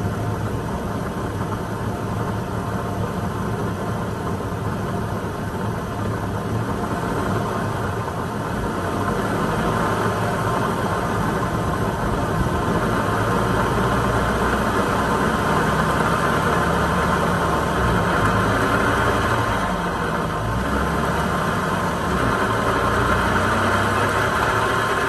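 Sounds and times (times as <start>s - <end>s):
rear differential grinding growl: 6.0s - 25.0s.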